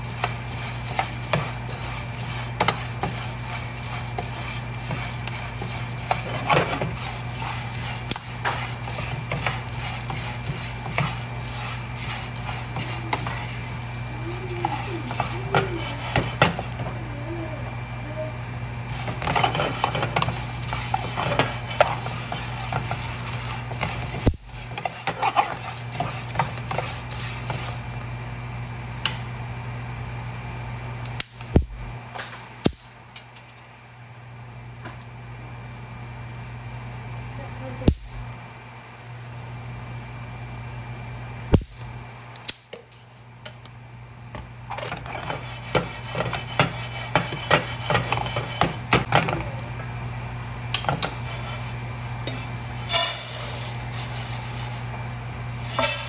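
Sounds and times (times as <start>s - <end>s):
seeds rattling in a frying pan: 0.0s - 16.8s, 18.8s - 27.9s, 50.7s - 56.0s
spatula scraping a pan: 0.0s - 16.9s, 18.9s - 27.9s, 44.7s - 49.3s, 50.8s - 56.0s
steady low hum: 0.0s - 56.0s.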